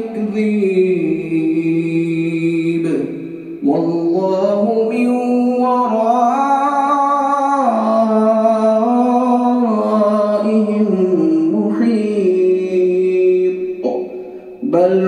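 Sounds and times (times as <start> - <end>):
man chanting into a microphone: 0.0 - 15.0.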